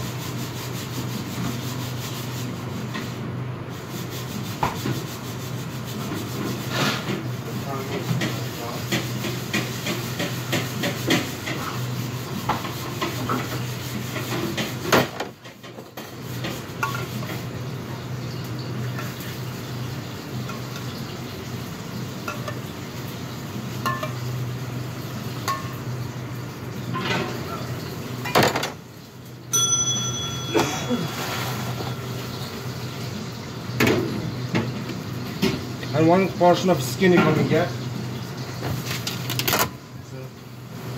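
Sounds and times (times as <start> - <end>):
pots and pans clinking: 12.5 - 17.5, 22.2 - 22.7, 23.8 - 24.4, 25.4 - 25.9, 29.5 - 36.0
short metallic ring: 29.5 - 32.0.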